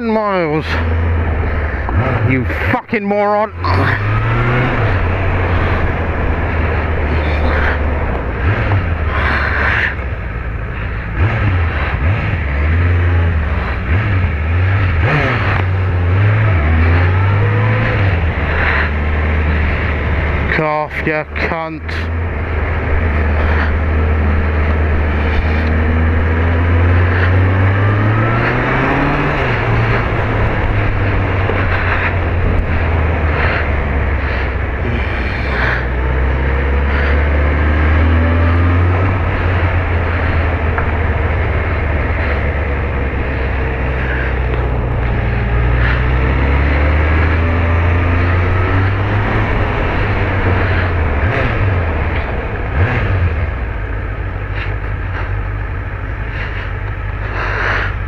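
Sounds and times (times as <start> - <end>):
motorcycle engine revving: 0.0 - 58.0
wind rushing on microphone: 27.0 - 53.9.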